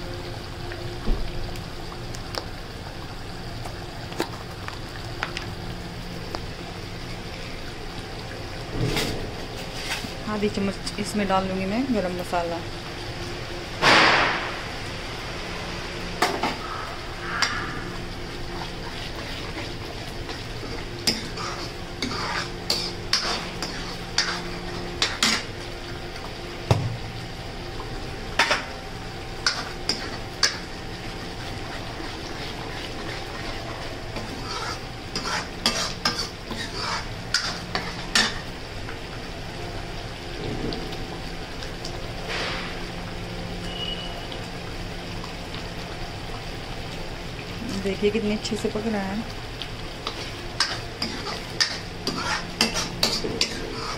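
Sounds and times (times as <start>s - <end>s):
gravy sizzling: 0.0s - 53.9s
low even hum: 0.0s - 53.9s
spoon scraping thick gravy: 21.2s - 24.4s, 34.2s - 37.9s.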